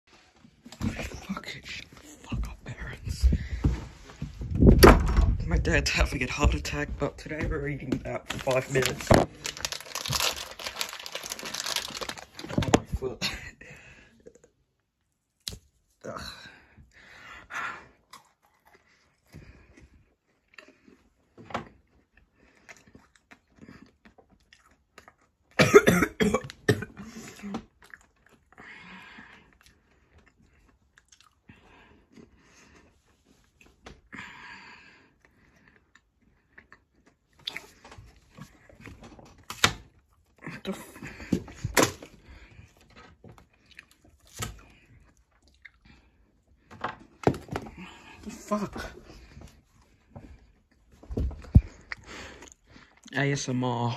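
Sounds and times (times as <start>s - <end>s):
person chewing chocolate bar: 8.1s - 12.8s, 17.9s - 25.6s, 27.2s - 33.7s, 34.9s - 40.5s, 41.8s - 46.6s, 51.4s - 53.1s
person coughing: 25.6s - 27.5s.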